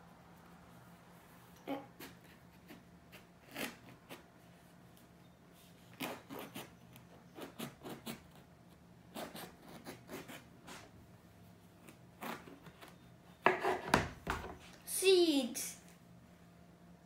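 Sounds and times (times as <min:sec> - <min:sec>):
knife sawing through eggplant: 0:01.8 - 0:04.2, 0:05.9 - 0:08.5, 0:09.1 - 0:10.9.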